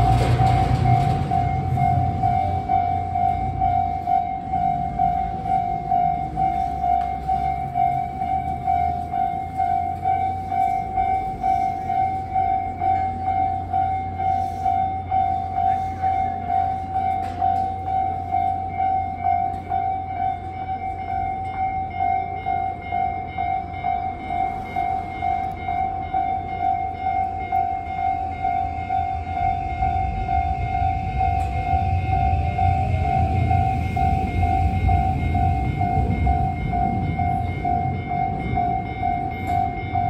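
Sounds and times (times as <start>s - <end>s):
level-crossing alarm bell ringing: 0.0s - 40.0s
low rumble: 28.0s - 40.0s.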